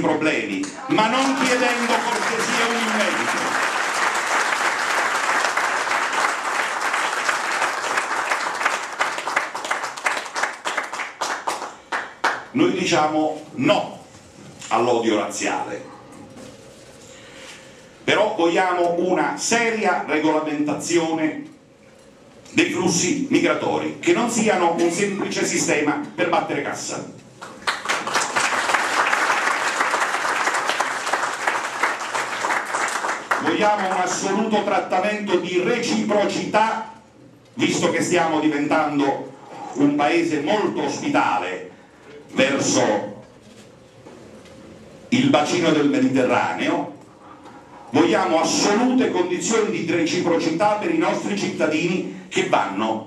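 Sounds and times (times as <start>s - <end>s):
audience applauding: 0.9s - 12.5s, 27.4s - 34.4s.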